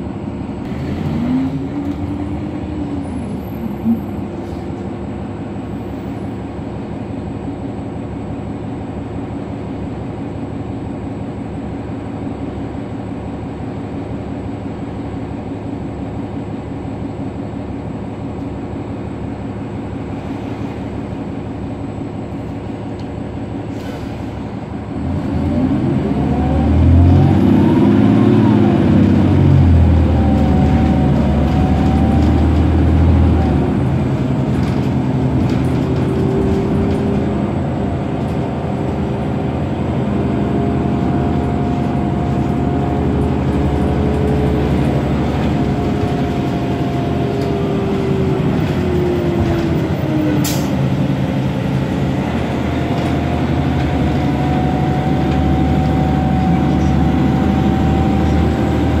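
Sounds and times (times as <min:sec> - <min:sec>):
bus diesel engine: 0:00.0 - 0:59.0
drivetrain whine: 0:24.6 - 0:59.0.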